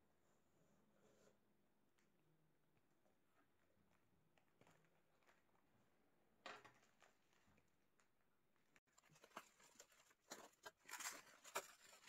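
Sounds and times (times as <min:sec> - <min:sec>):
bubble wrap crinkling: 0:08.9 - 0:12.0.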